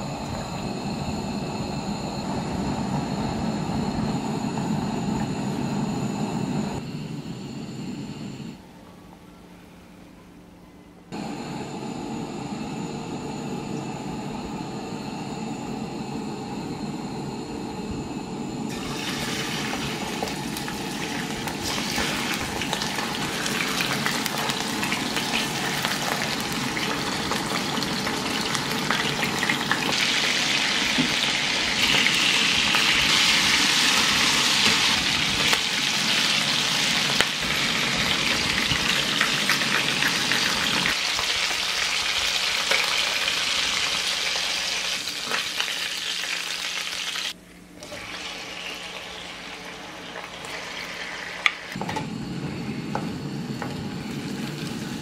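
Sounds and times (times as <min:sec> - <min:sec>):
chicken sizzling in oil: 0:18.7 - 0:51.7.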